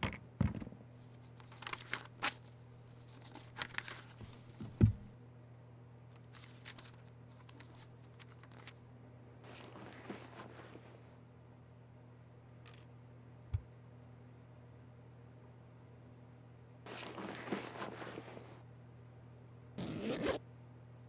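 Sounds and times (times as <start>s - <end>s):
paper rustling: 1.0s - 5.0s, 6.1s - 8.8s, 9.5s - 10.9s, 16.9s - 18.5s.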